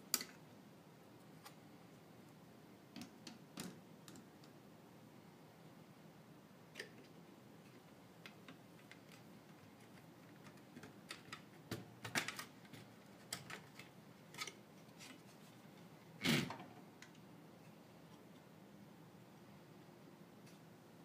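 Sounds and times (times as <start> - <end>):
plastic and metal parts clicking: 8.2 - 14.6.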